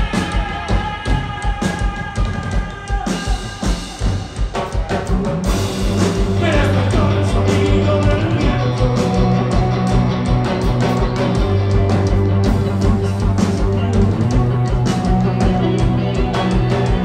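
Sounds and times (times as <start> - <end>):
rock band playing live: 0.0 - 17.0.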